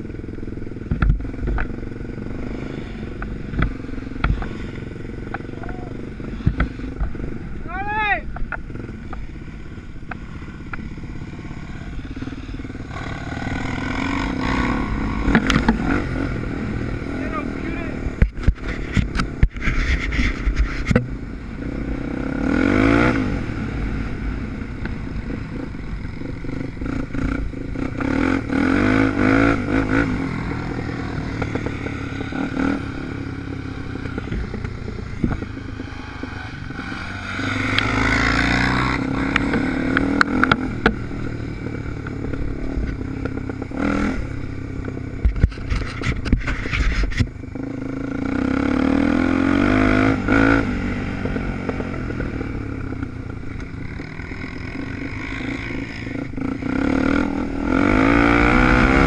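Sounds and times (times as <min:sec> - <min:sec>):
bike rattling over bumps: 0:00.0 - 0:16.3, 0:24.5 - 0:47.6
motorcycle engine revving: 0:00.0 - 0:59.0.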